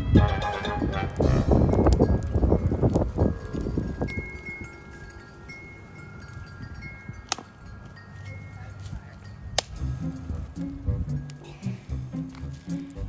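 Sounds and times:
wind chimes ringing: 0:00.5 - 0:13.0.

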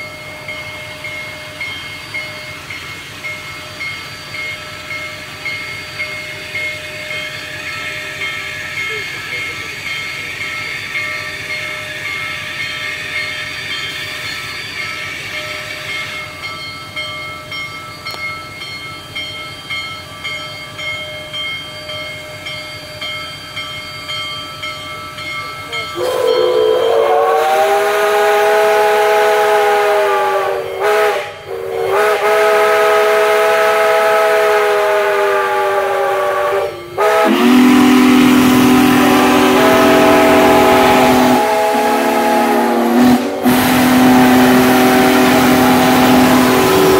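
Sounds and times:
locomotive bell ringing: 0:00.0 - 0:27.6, 0:30.4 - 0:32.0, 0:35.4 - 0:46.9
steam locomotive rolling slowly: 0:00.0 - 0:46.9
deep loud steam whistle: 0:26.0 - 0:46.9
steam whistle chord: 0:26.0 - 0:46.9.

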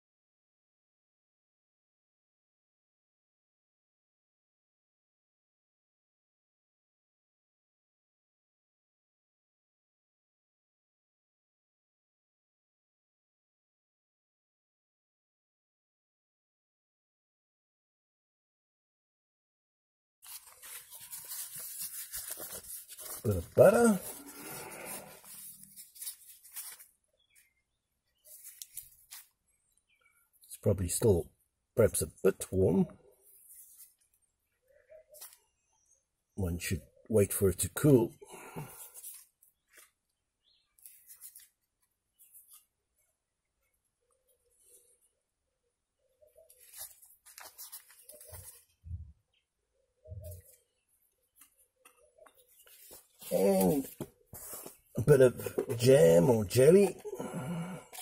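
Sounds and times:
paper wrapper rustling: 0:20.2 - 0:27.5, 0:28.2 - 0:29.4, 0:40.8 - 0:41.7, 0:46.6 - 0:48.7.

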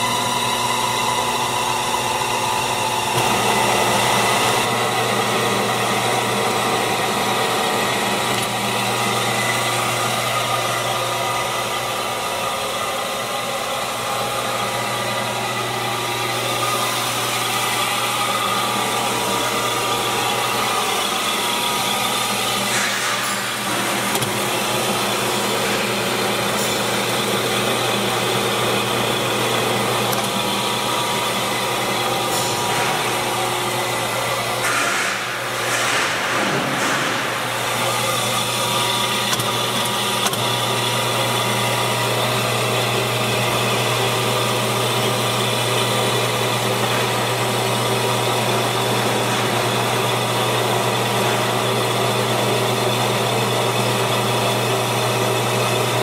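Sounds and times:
electric drive humming: 0:00.0 - 0:34.6, 0:36.4 - 0:56.0.

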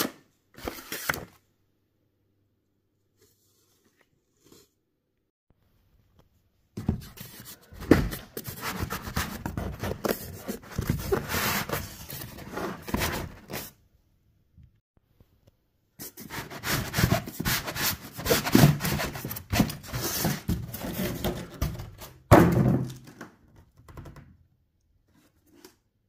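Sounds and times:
cardboard and styrofoam scraping: 0:06.8 - 0:13.7, 0:16.0 - 0:22.0.

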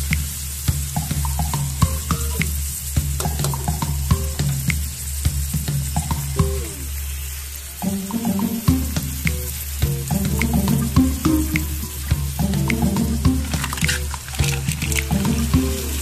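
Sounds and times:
shrimp sizzling in wok: 0:00.0 - 0:16.0.

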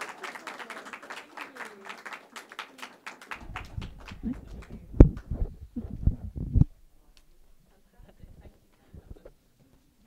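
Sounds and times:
applause: 0:00.0 - 0:05.3
dull low thumps and knocks: 0:03.4 - 0:06.7.

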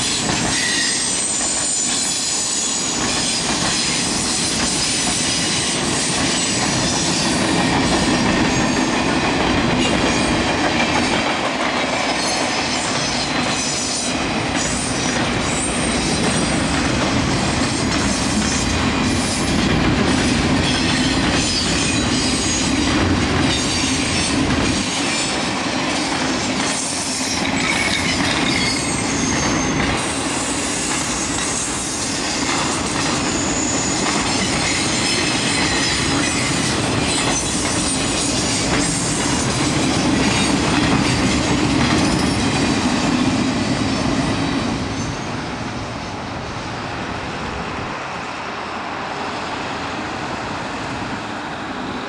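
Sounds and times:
wheel-on-rail squeals: 0:00.0 - 0:09.0, 0:20.6 - 0:22.8, 0:26.0 - 0:42.7
train wheels clattering over rails: 0:00.0 - 0:45.4.

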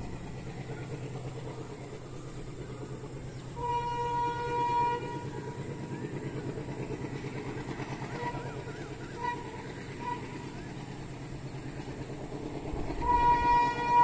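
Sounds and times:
diesel locomotive engine chugging: 0:00.0 - 0:14.0
locomotive horn: 0:03.6 - 0:05.6, 0:07.8 - 0:11.1, 0:12.8 - 0:14.0.

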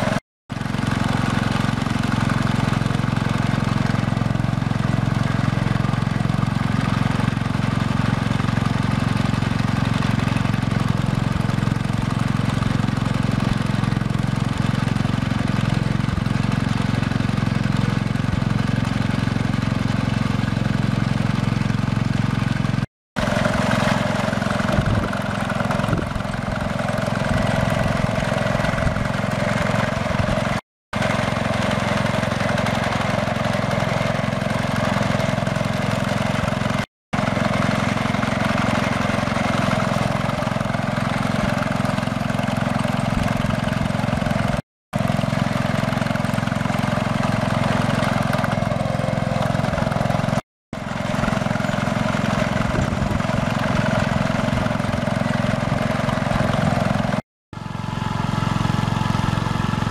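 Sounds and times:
garden tractor engine running: 0:00.0 - 0:59.9.

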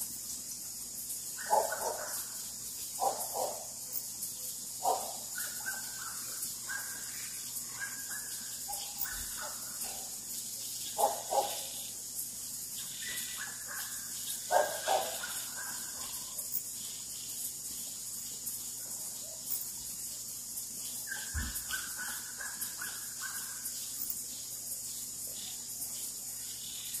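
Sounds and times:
high-pitched insect drone: 0:00.0 - 0:27.0
frog calls: 0:01.3 - 0:12.0, 0:12.8 - 0:17.9, 0:20.8 - 0:24.4.

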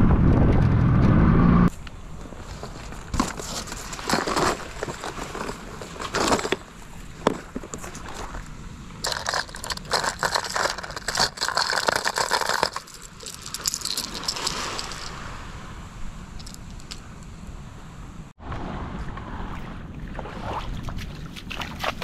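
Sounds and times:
plastic tackle box opening: 0:02.6 - 0:08.4, 0:09.0 - 0:15.0
lures rattling against plastic: 0:03.2 - 0:06.7, 0:09.0 - 0:15.1.

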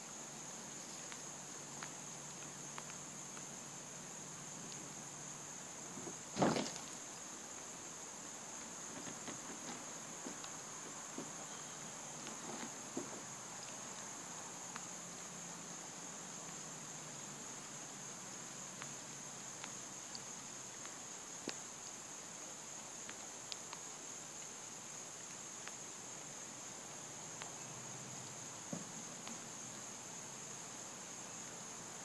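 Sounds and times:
crickets trilling: 0:00.0 - 0:32.0
faint clicks: 0:00.9 - 0:03.5.

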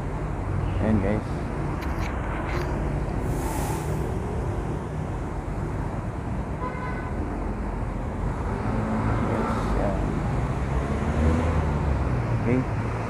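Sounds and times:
road traffic rumble: 0:00.0 - 0:13.0
brief hiss: 0:03.2 - 0:04.1.

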